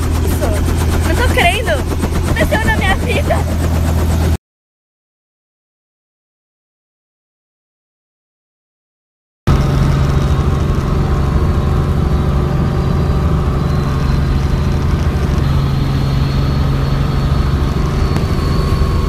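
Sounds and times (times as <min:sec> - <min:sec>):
helicopter engine and rotor drone: 0:00.0 - 0:04.4, 0:09.5 - 0:19.0.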